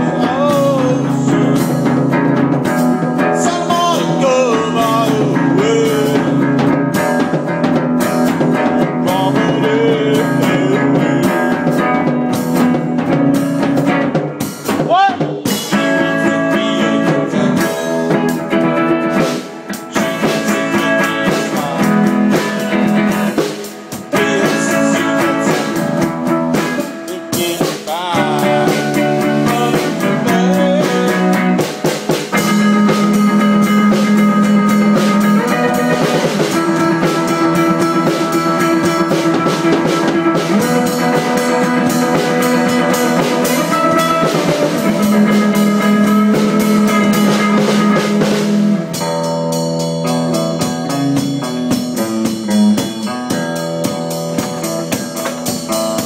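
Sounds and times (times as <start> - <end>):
steady drum beat: 0.0 - 56.0
electric guitar sustained notes: 32.4 - 56.0.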